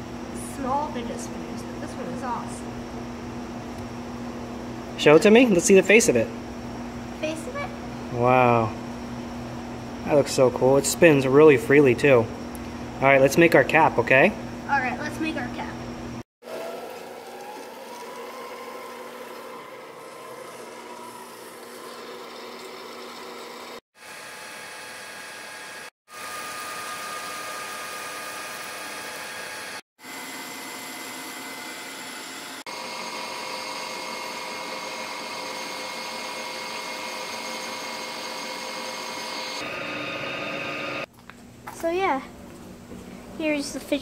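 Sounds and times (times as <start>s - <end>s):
motor spinning up with whine: 14.9s - 41.1s
metal lathe running: 18.5s - 41.1s.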